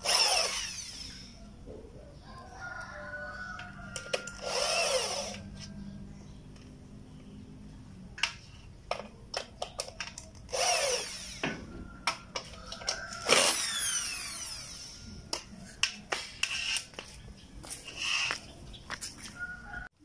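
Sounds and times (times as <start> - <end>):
electric drill driving screws: 0.0 - 1.4, 3.9 - 5.6, 10.5 - 11.7, 12.7 - 15.5, 16.4 - 17.0, 17.9 - 18.3.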